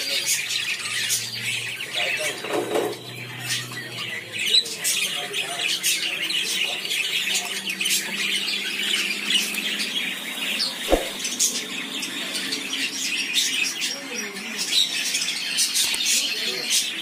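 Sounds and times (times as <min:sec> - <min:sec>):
birds chirping and squawking: 0:00.0 - 0:17.0
sharp thump: 0:10.9 - 0:11.2.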